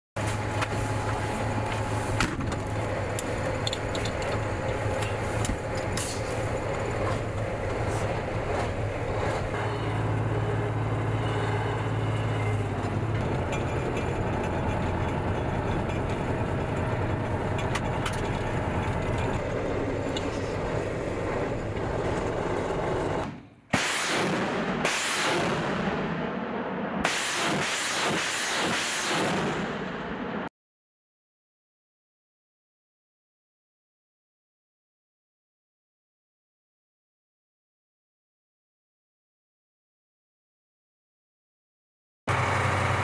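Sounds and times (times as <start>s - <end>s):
road and cab noise: 0.2s - 23.7s, 42.3s - 43.0s
truck engine drone: 0.2s - 30.5s, 42.3s - 43.0s
rattles and knocks: 13.1s - 23.4s.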